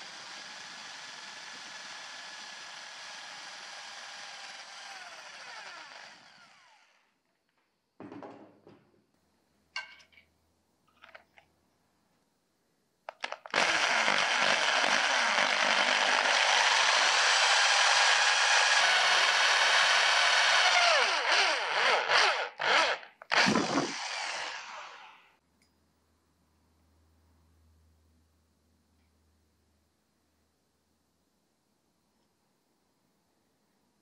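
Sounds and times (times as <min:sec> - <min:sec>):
electric drill boring through wood: 0:00.0 - 0:07.1, 0:13.2 - 0:25.3.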